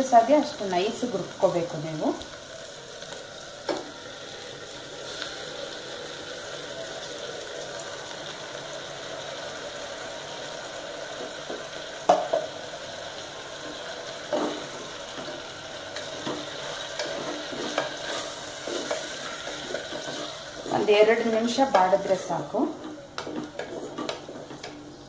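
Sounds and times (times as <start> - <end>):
vegetables sizzling in a pot: 0.0 - 25.0
spoon knocking and scraping pot: 16.0 - 20.9, 22.8 - 24.8.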